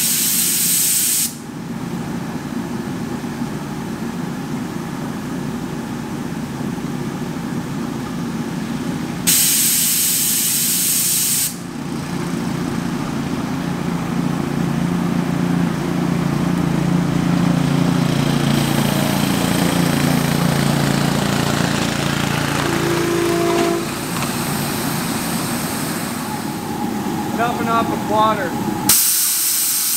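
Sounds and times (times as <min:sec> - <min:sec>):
steam hissing burst: 0:00.0 - 0:01.4, 0:09.2 - 0:11.6, 0:18.4 - 0:29.9
low hum: 0:11.6 - 0:28.9
short pitched whistle toot: 0:22.3 - 0:24.5.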